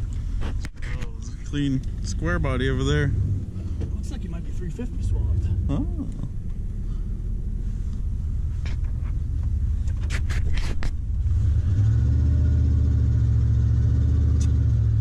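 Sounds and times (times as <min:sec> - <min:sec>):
truck engine pulling away: 0:11.1 - 0:15.0.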